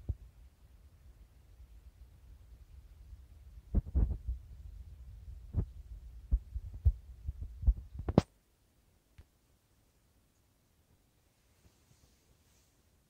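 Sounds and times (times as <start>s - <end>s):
microphone handling rumble: 3.7s - 4.4s.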